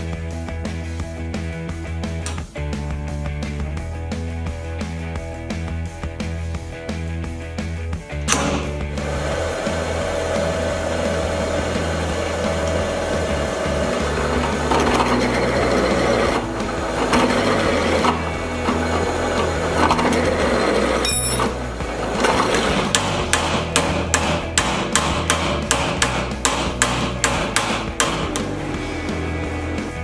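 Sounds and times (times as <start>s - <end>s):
drill press cutting steel: 8.3s - 24.6s
hammer striking steel: 22.8s - 28.6s.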